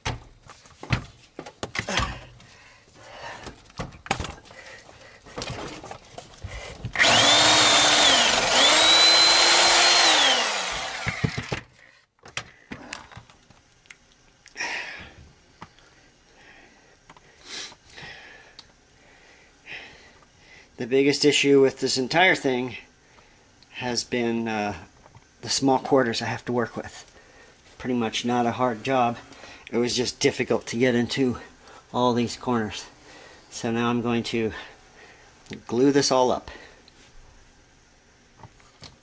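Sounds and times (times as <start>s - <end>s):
power tool whining: 7.0s - 11.6s.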